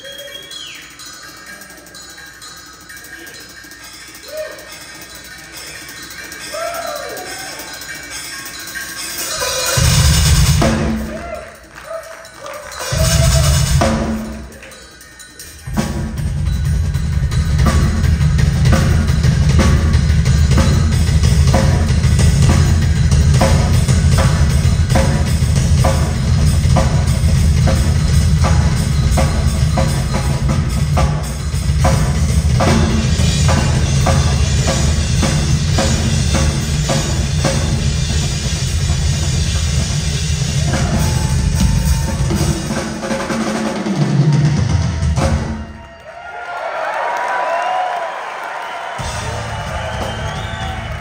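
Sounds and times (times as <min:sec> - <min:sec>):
rock drum solo: 0:09.2 - 0:11.5, 0:12.7 - 0:14.5, 0:15.7 - 0:45.8, 0:49.0 - 0:51.0
bass drum pounding: 0:49.0 - 0:51.0.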